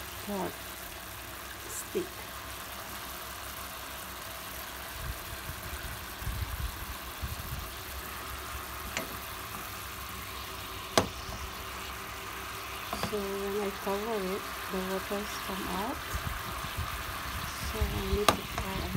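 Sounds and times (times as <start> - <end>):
meat sizzling in a pan: 0.0 - 18.9
pan juices bubbling: 6.9 - 18.9.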